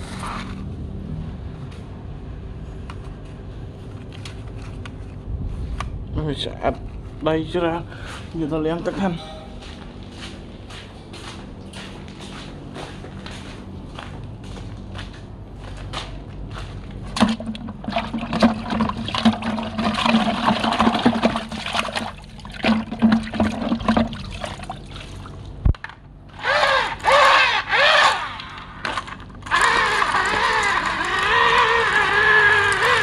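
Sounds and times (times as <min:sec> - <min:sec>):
engine-like revs and drone: 0:00.0 - 0:02.9, 0:26.3 - 0:33.0
water sloshing and splashing: 0:17.0 - 0:25.7.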